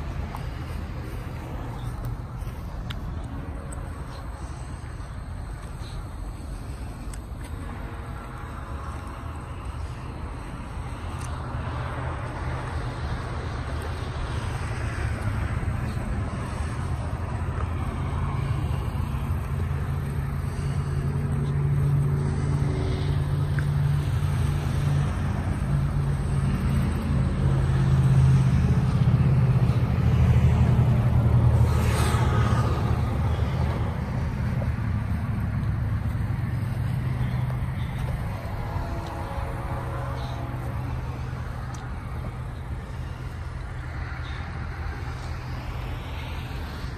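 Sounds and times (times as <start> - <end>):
vehicle engine rumbling: 0.0 - 46.9.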